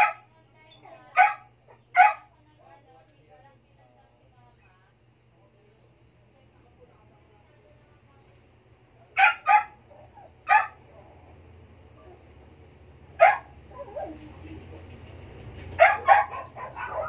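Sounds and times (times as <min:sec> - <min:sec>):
dog barking: 0:00.0 - 0:00.3, 0:01.1 - 0:02.3, 0:09.2 - 0:10.8, 0:13.2 - 0:14.3, 0:15.6 - 0:17.0.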